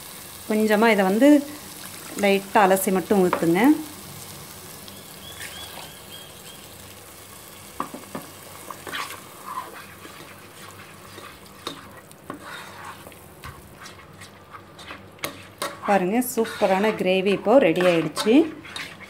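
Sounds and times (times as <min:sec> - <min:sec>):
gravy sizzling in pan: 0:00.0 - 0:19.0
paste being stirred: 0:08.6 - 0:19.0.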